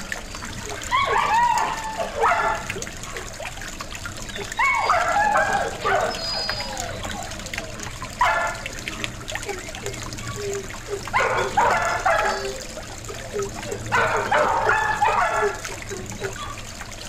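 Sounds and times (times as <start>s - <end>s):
dogs barking: 0.0s - 17.0s
fountain splashing: 0.0s - 17.0s.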